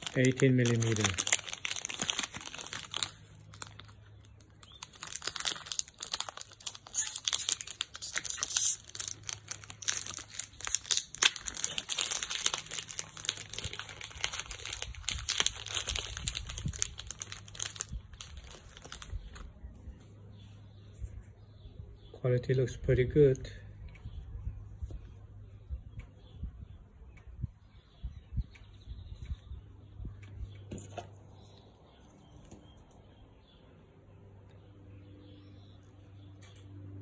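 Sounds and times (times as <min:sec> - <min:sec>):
plastic bag crinkling: 0:00.0 - 0:19.5.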